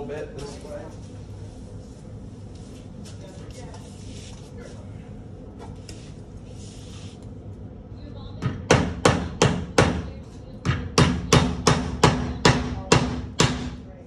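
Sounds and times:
hammer tapping on wooden frame: 8.4 - 13.8.

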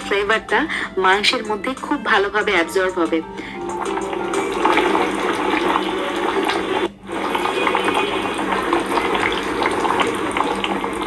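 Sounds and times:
curry bubbling and popping: 3.8 - 11.0.

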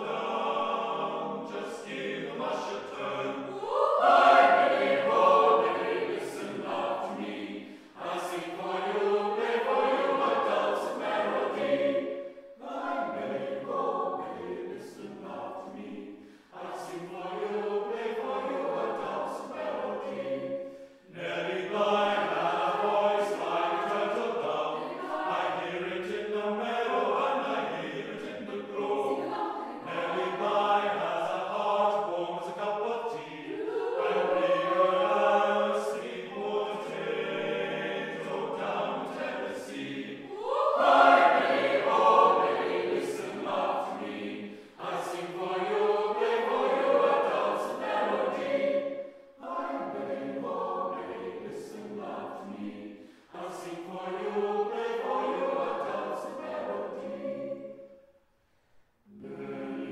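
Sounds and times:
chamber choir singing: 0.0 - 58.1, 59.0 - 59.9.

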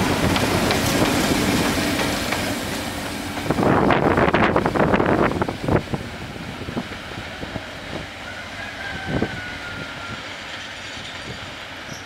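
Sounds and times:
train wheels clacking over rail joints: 0.0 - 4.0.

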